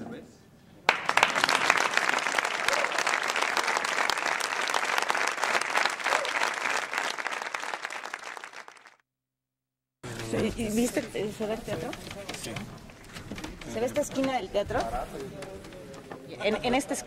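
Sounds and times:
crowd clapping: 0.8s - 9.0s.

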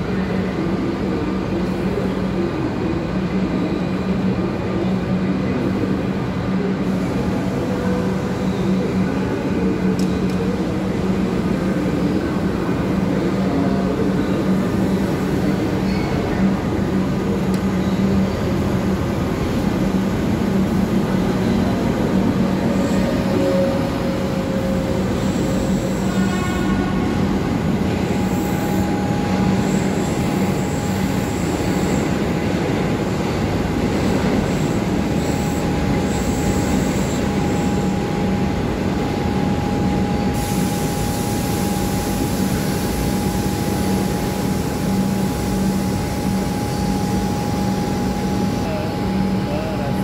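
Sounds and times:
electric train hum and whine: 0.0s - 50.0s
train rumble: 0.0s - 50.0s
train brake squeal: 15.8s - 16.4s.

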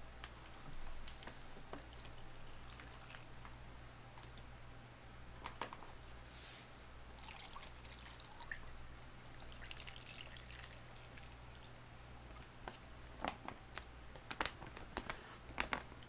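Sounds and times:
liquid pouring and dribbling: 1.6s - 3.4s, 7.1s - 11.9s
plastic pouch clicks: 13.2s - 15.9s.

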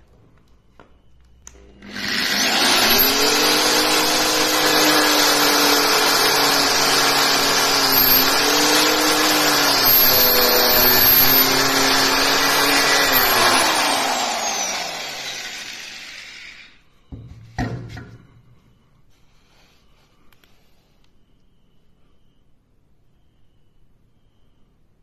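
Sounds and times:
angle grinder whining: 1.5s - 16.8s
grinder disc cutting husk: 1.5s - 16.8s.

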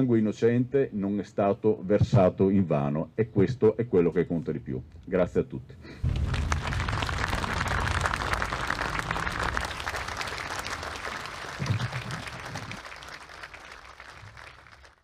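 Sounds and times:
crowd applauding: 6.0s - 15.0s.

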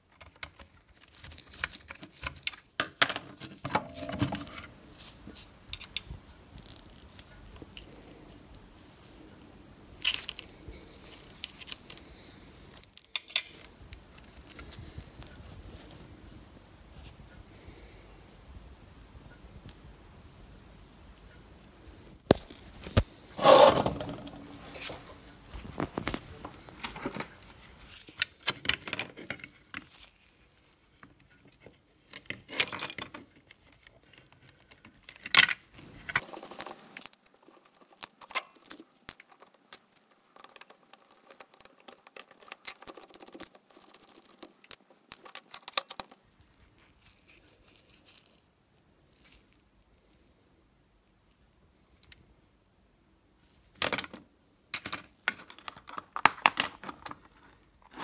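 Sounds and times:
small metal parts clicking: 35.1s - 46.2s.

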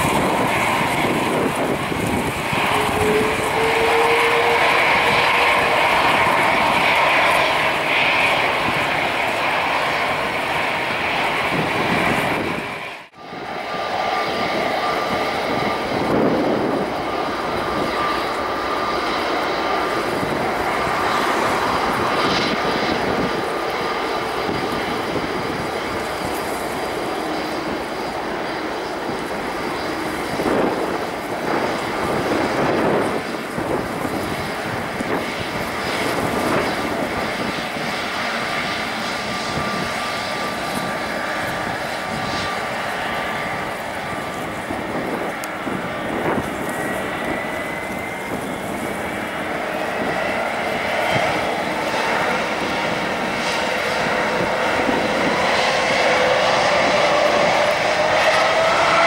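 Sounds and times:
jet engines rushing: 0.0s - 59.0s
thin steady engine whine: 0.0s - 59.0s.

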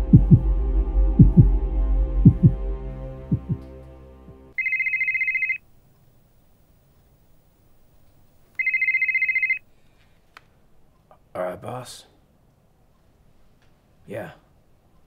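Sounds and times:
heartbeat-like thumps: 0.0s - 1.6s, 2.2s - 2.6s, 3.3s - 3.6s
low droning hum: 0.0s - 3.6s
phone ringing with trilling tone: 4.6s - 5.7s, 8.6s - 9.6s.

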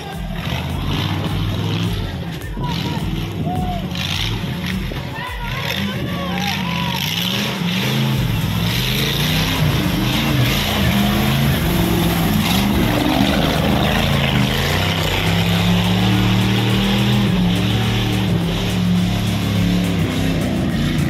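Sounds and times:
jeep engine revving: 0.0s - 21.0s
mud and water splashing: 6.4s - 21.0s.

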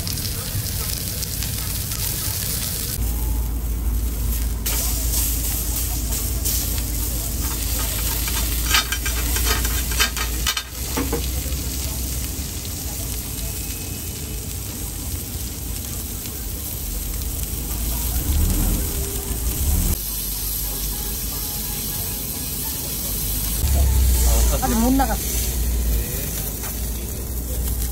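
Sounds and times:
meat sizzling on a griddle: 0.0s - 27.9s
metal utensils scraping a pan: 7.3s - 11.3s.

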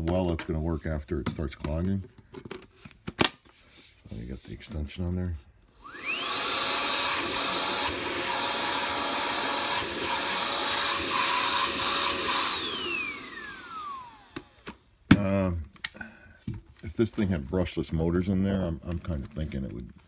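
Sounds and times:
vacuum motor whining: 5.8s - 14.7s.

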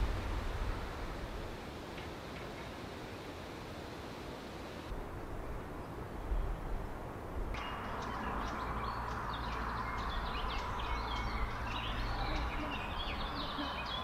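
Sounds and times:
steady low rumble: 0.0s - 1.9s
birds chirping and whistling: 7.6s - 14.0s.

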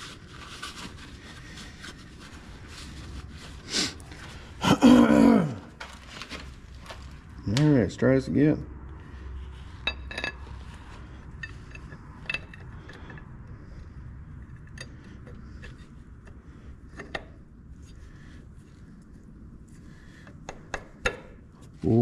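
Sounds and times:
steady low rumble: 0.3s - 20.2s
metal clinks and scrapes: 9.6s - 13.3s.

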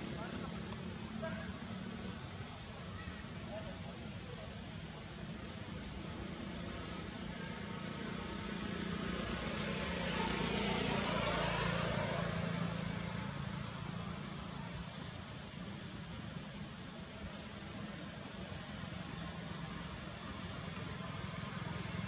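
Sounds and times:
motor vehicle passing by: 6.5s - 15.2s.

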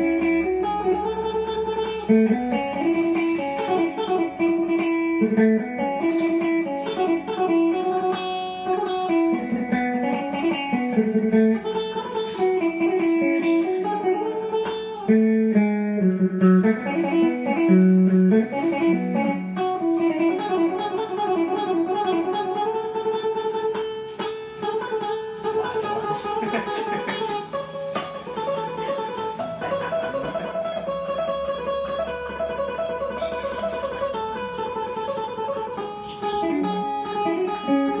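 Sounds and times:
electric guitar melody: 0.0s - 38.0s.

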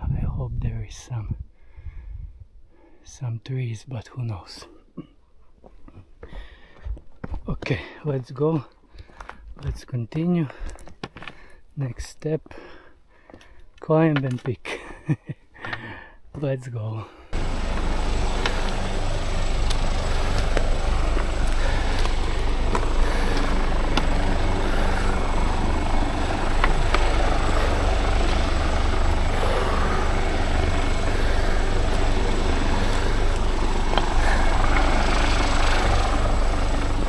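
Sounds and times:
wind buffeting microphone: 0.0s - 2.6s
footsteps on rocky ground: 5.6s - 7.8s, 8.7s - 12.6s, 13.2s - 14.7s, 19.6s - 24.8s.

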